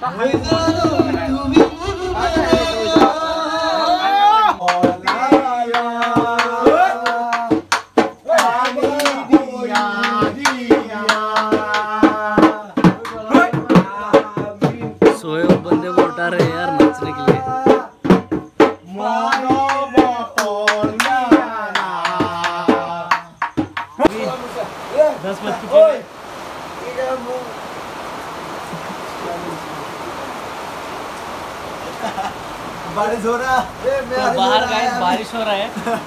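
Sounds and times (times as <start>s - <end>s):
quick dense drum strokes: 0.0s - 18.8s
person singing long held notes: 0.4s - 7.6s.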